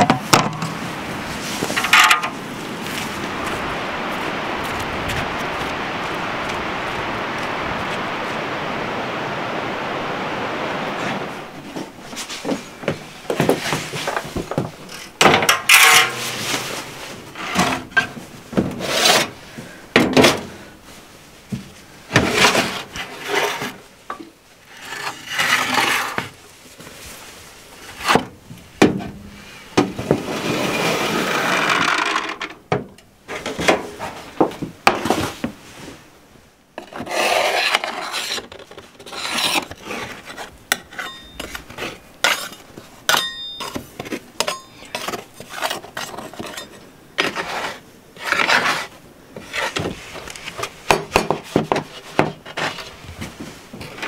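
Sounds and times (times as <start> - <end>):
metal spatula scraping baking tray: 15.5 - 17.9, 24.8 - 26.2, 36.8 - 43.8, 44.4 - 49.8.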